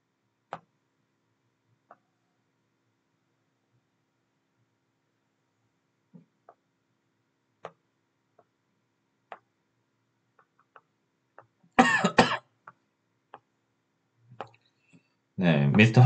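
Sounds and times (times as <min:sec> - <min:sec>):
person coughing: 0:11.8 - 0:12.5.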